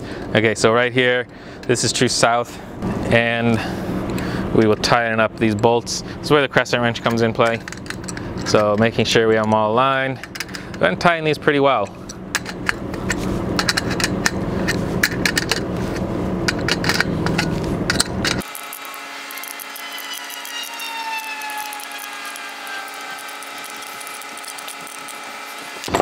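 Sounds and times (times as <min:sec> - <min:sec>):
wrench clicking and scraping on bolts: 0:07.0 - 0:10.8, 0:11.8 - 0:25.9.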